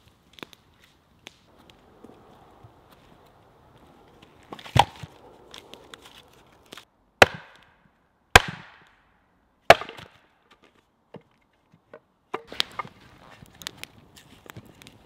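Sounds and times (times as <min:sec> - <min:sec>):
axe chopping wood on block: 0:07.2 - 0:07.7, 0:08.4 - 0:08.9, 0:09.7 - 0:10.2, 0:12.3 - 0:12.9.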